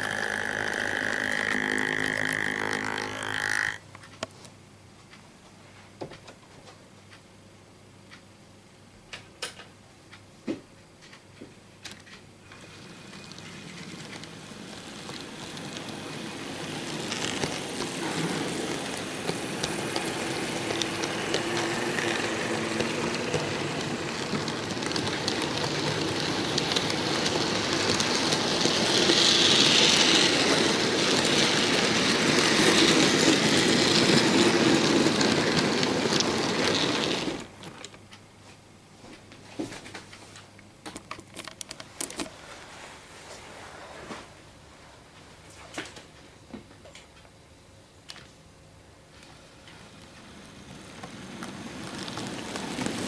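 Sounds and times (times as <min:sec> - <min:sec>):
model train running on track: 0:00.0 - 0:03.8, 0:12.5 - 0:37.6, 0:49.2 - 0:53.0.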